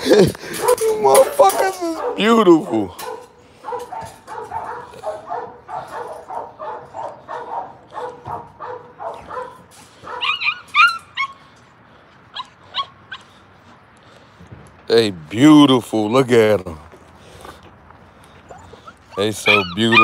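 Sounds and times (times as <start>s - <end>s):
puppies yipping and whining: 9.1s - 11.7s, 12.3s - 13.4s, 18.3s - 20.0s.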